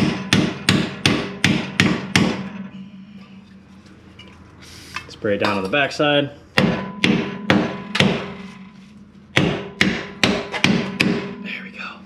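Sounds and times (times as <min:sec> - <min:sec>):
hammer striking metal bolt: 0:00.0 - 0:02.7, 0:06.6 - 0:08.6, 0:09.4 - 0:11.4.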